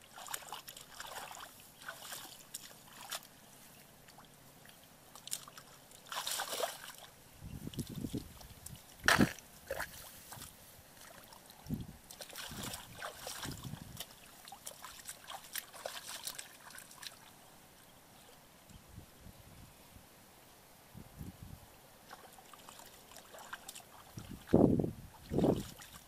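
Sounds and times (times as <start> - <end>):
hands splashing in muddy water: 0.0 - 3.3, 5.2 - 7.1, 7.7 - 17.3, 22.1 - 24.6, 25.2 - 26.0.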